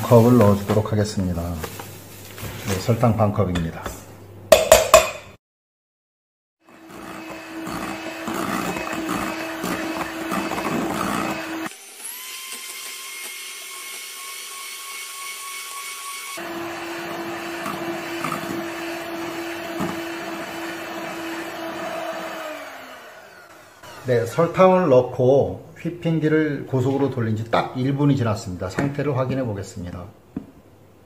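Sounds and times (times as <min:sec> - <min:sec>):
electric hand mixer whine: 0:06.6 - 0:24.4.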